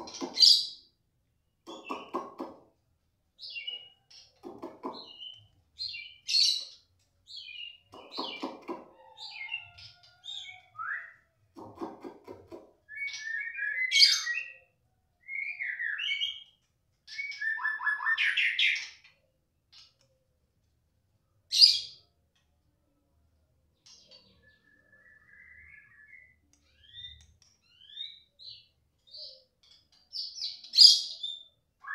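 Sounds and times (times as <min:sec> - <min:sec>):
bird singing whistled phrases: 0:10.4 - 0:11.2, 0:12.9 - 0:14.6, 0:17.1 - 0:18.8, 0:24.5 - 0:27.2, 0:30.9 - 0:31.9.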